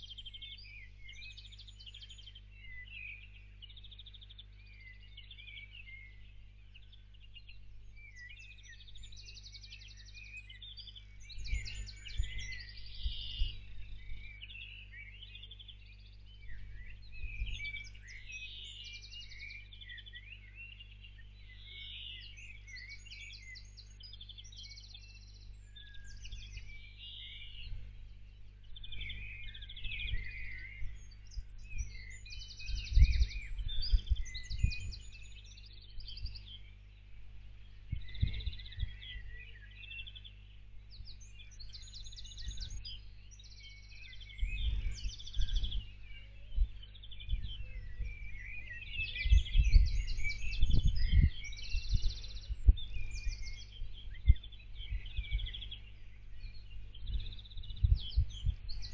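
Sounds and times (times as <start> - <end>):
songbirds chirping and trilling: 0.0 - 58.9
steady low hum: 0.0 - 58.9
low rumbling thumps: 32.7 - 35.1, 37.2 - 39.2, 49.2 - 55.7, 57.1 - 58.9.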